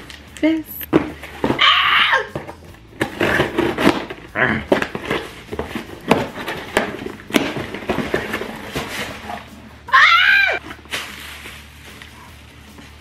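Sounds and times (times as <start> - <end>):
cardboard flaps rustling: 0.9 - 9.6.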